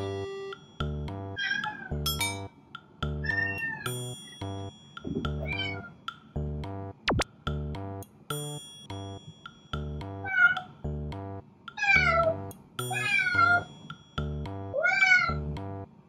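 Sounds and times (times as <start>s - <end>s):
background music with steady beat: 0.0s - 14.8s, 15.4s - 16.0s
cat meowing: 1.4s - 1.9s, 3.2s - 3.9s, 10.2s - 10.7s, 11.8s - 12.4s, 14.7s - 15.4s
pitch sweep down and up: 7.0s - 7.2s.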